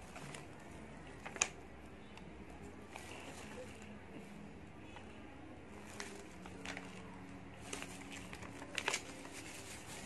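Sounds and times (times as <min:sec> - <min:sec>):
packaging rustling and crinkling: 0:05.8 - 0:10.0.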